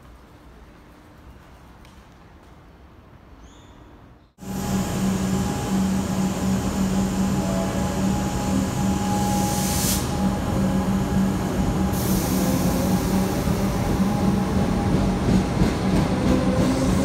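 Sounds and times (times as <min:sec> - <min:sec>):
high hiss bursts: 0:04.4 - 0:10.4
electric train motor hum: 0:04.4 - 0:15.3.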